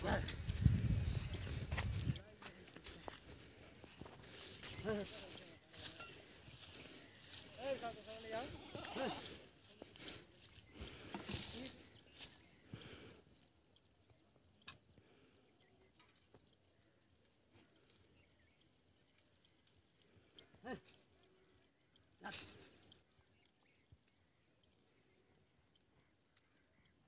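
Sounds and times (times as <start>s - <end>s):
faint high chirping: 3.7s - 27.0s.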